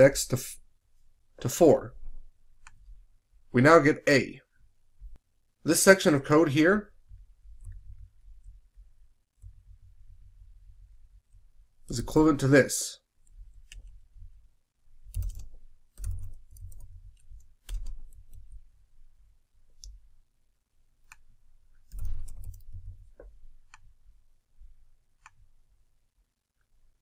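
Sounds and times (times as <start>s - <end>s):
keyboard key clicks: 15.1s - 16.9s.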